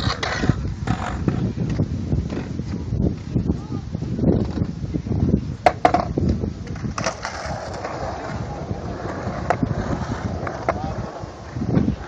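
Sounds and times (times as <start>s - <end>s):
skateboard clacks: 0.0s - 2.5s, 5.6s - 12.0s
skateboard wheels rolling on concrete: 0.0s - 12.0s.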